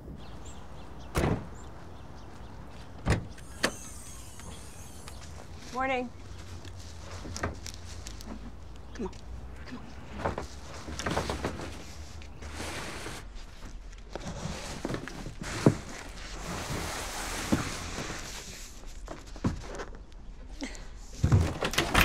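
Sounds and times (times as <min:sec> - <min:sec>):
background hiss: 0:03.0 - 0:08.6
boxes knocking and thumping: 0:10.1 - 0:12.0, 0:21.2 - 0:22.0.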